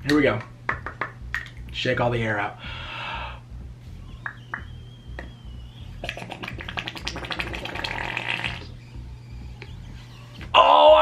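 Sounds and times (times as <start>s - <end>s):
faint thin whistle: 4.1s - 6.0s
air gurgling through slime: 6.0s - 8.7s.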